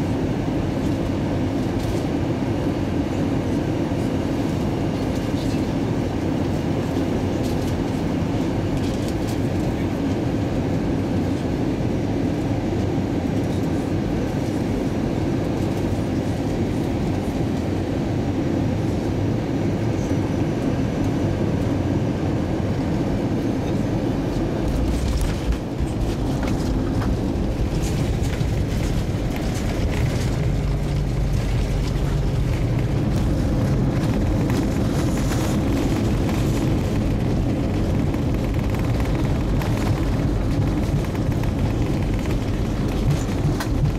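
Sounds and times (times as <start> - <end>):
airplane cabin engine noise: 0.0 - 43.9
landing gear rumbling on runway: 23.6 - 43.9.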